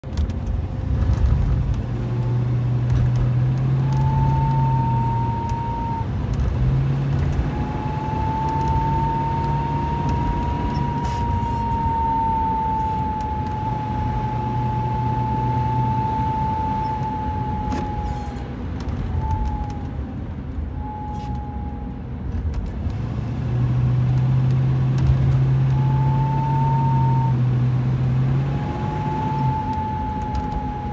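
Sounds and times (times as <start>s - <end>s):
low hum: 0.0s - 30.9s
road and engine noise: 0.0s - 30.9s
steady high whistle: 3.7s - 6.1s, 7.4s - 18.4s, 20.8s - 22.0s, 25.5s - 30.9s.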